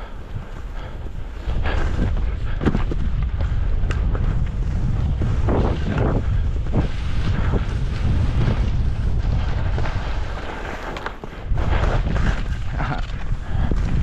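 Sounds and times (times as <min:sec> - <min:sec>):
skis swishing on snow: 0:00.0 - 0:14.0
wind buffeting microphone: 0:00.0 - 0:14.0.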